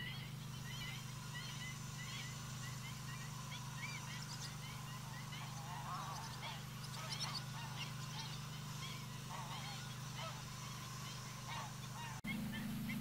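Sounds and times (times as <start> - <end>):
geese honking: 0.0 - 13.0
steady low hum: 0.0 - 13.0.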